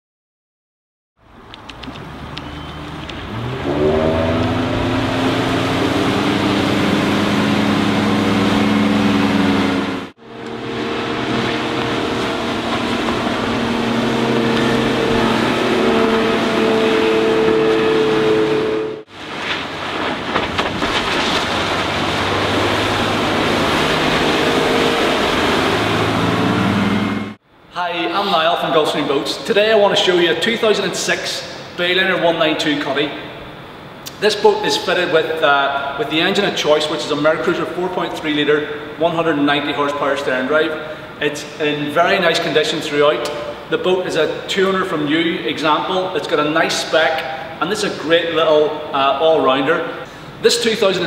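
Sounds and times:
motorboat engine running: 1.3 - 27.4.

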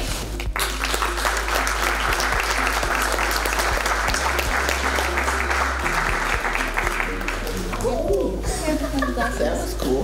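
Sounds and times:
audience applauding: 0.4 - 7.8.

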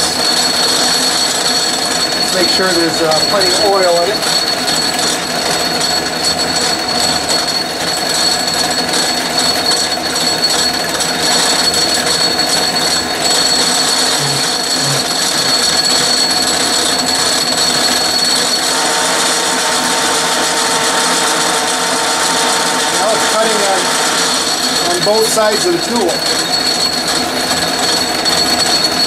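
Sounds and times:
metal lathe whine: 0.0 - 29.0
steady tone: 11.8 - 27.0.

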